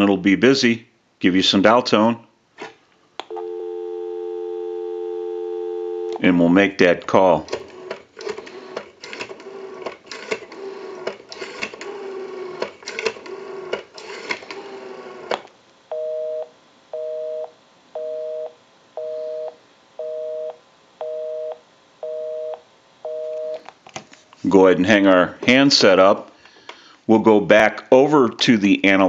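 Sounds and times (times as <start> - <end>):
telephone busy signal beeps: 3.3 - 6.2, 15.9 - 23.6
telephone dial tone: 3.3 - 6.2.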